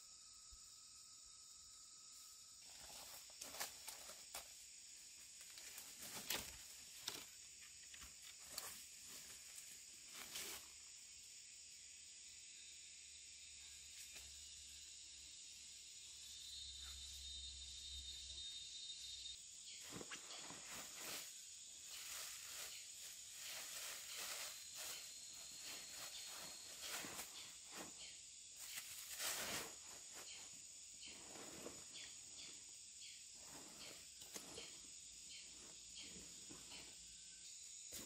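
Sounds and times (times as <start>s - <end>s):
high insect drone: 0.0s - 38.0s
rustling of fabric and bag: 28.6s - 30.5s, 31.1s - 32.2s.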